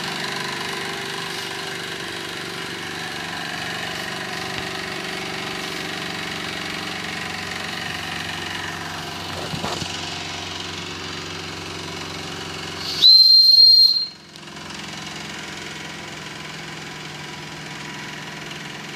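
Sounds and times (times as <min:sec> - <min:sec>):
high steam whistle: 0:12.8 - 0:14.3.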